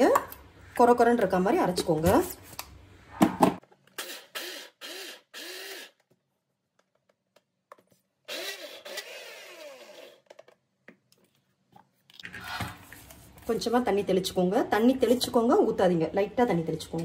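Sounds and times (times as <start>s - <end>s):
mixer grinder motor grinding: 4.0s - 6.1s, 8.3s - 10.4s.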